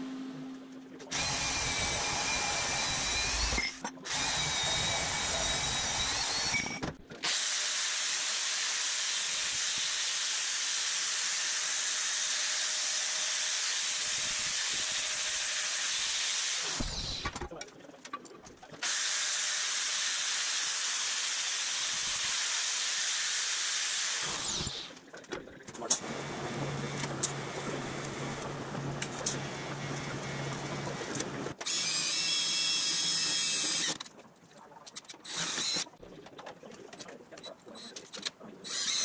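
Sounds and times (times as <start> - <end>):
angle grinder grinding: 1.1 - 8.2, 24.1 - 25.0
band saw cutting steel: 1.1 - 17.3, 18.8 - 25.0.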